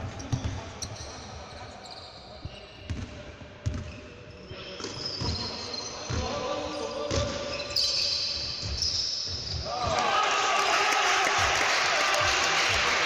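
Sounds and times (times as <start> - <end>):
sneaker squeaks: 0.0 - 10.0
basketball bouncing on wooden floor: 2.9 - 3.9.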